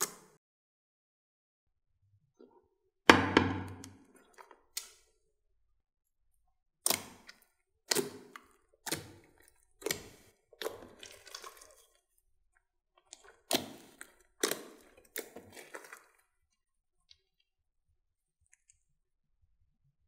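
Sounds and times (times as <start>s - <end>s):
slime squelching and crackling: 6.8s - 17.6s.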